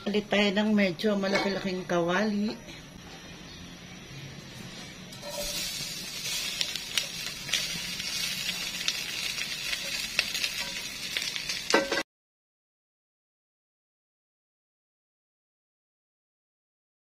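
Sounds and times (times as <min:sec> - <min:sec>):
vegetables sizzling in a wok: 0:03.9 - 0:12.0.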